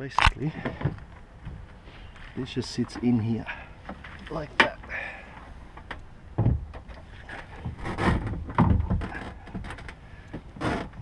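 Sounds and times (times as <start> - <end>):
hard knocks and scraping on plastic: 5.8 - 11.0.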